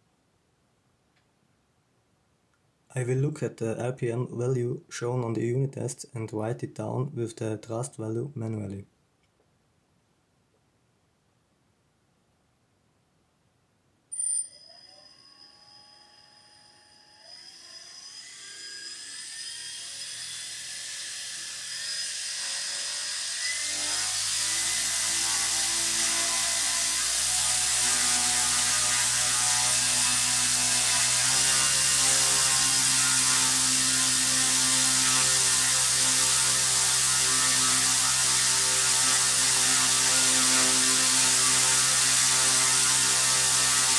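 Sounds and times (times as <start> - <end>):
electric motor whine: 14.7 - 43.9.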